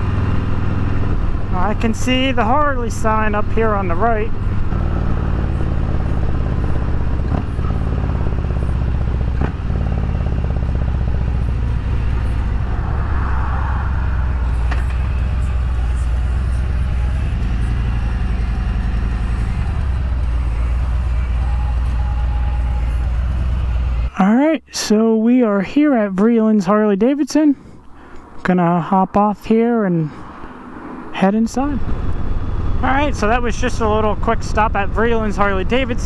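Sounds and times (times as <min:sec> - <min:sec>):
motorcycle engine running: 0:00.0 - 0:24.1, 0:31.5 - 0:36.0.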